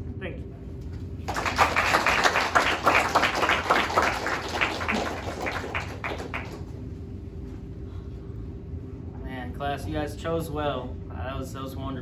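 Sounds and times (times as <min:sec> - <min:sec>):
small audience applauding: 0:01.2 - 0:06.8.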